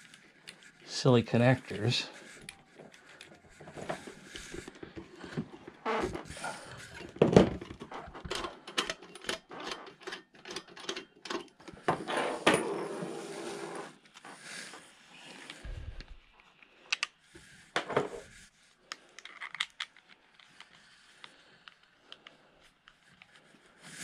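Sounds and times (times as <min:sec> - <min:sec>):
cable connectors clicking and rattling: 0:06.7 - 0:11.8, 0:18.9 - 0:22.3.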